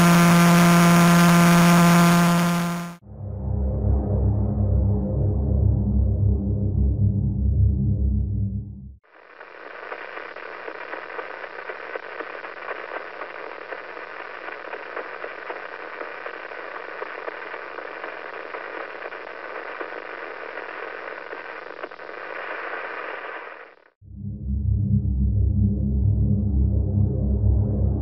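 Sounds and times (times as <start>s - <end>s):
static hiss: 0.0s - 3.0s, 9.0s - 24.0s.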